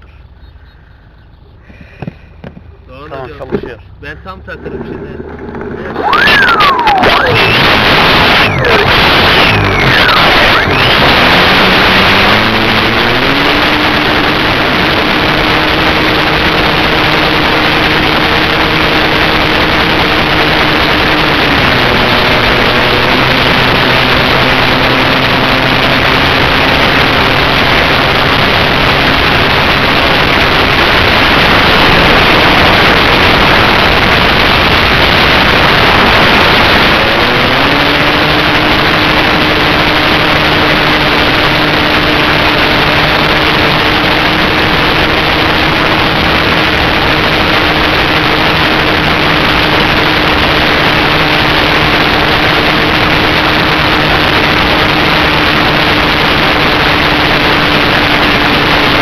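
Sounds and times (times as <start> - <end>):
propeller motor whine: 0.0 - 59.0
wind rushing over microphone: 5.2 - 59.0.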